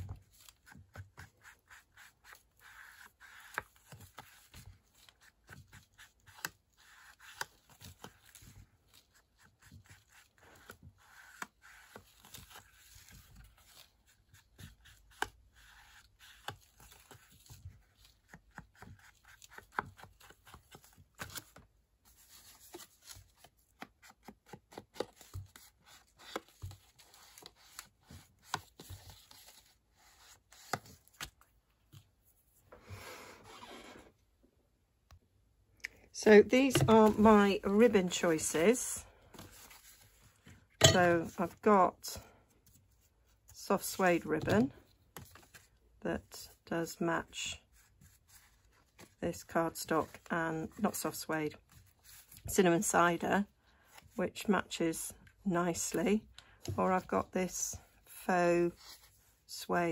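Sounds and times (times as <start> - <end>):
sponge scrubbing card: 0.0 - 31.4, 36.4 - 41.6
sponge dabbing on card: 0.2 - 21.5.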